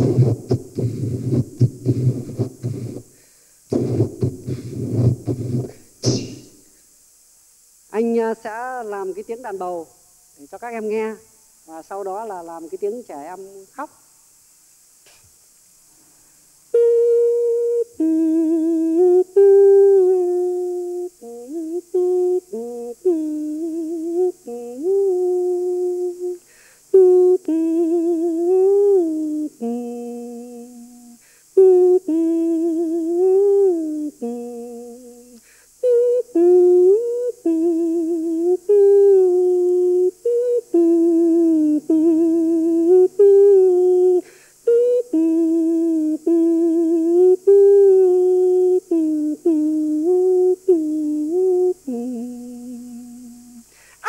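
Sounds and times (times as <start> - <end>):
man humming a melody: 0.0 - 3.1, 3.7 - 6.5, 16.7 - 53.8.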